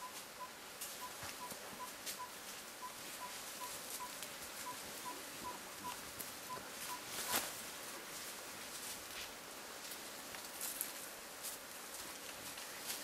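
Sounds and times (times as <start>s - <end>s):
short beeps on one pitch: 0.0s - 7.4s
rustling and crackling of leaves: 0.0s - 13.0s.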